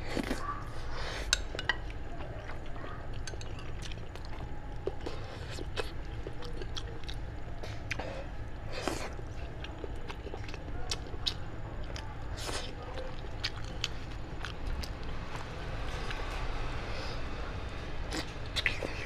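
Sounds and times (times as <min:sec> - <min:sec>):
person chewing: 0:00.0 - 0:16.3, 0:18.1 - 0:19.0
steady low hum: 0:00.0 - 0:19.0.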